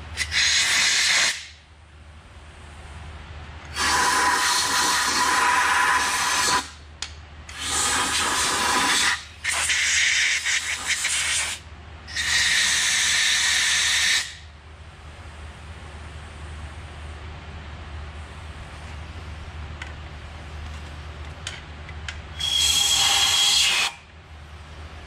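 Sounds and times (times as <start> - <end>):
compressed air blow gun hissing: 7.5 - 14.4, 22.4 - 24.0.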